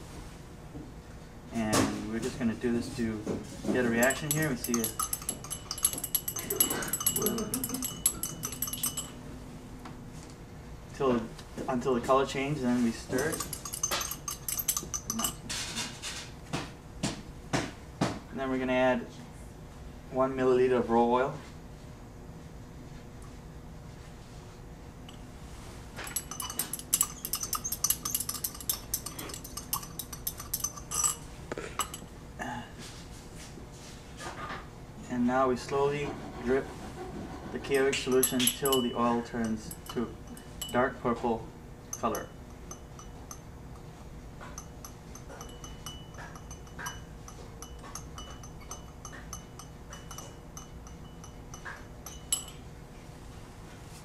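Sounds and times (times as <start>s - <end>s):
faint steady hum: 0.0s - 54.0s
glass rod clinking in beaker: 3.8s - 9.2s, 13.0s - 15.9s, 26.0s - 32.1s, 37.6s - 52.7s.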